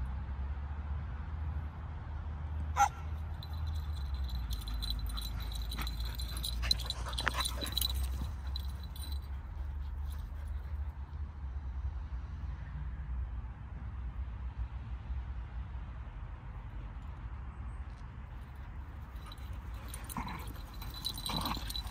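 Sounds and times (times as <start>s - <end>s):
dog yip: 2.8s - 3.1s
paw clicks: 3.4s - 10.8s, 19.1s - 21.9s.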